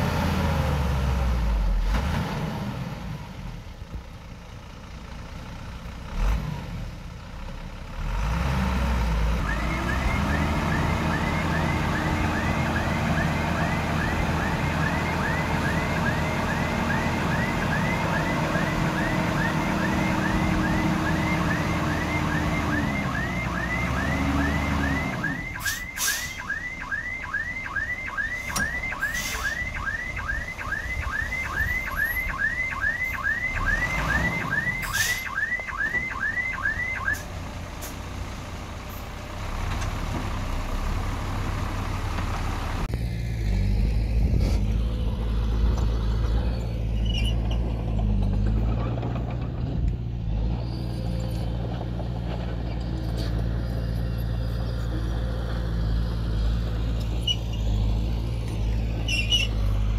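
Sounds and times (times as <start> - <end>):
reversing alarm chirping: 9.4 - 37.2
heavy diesel engine running: 37.3 - 59.9.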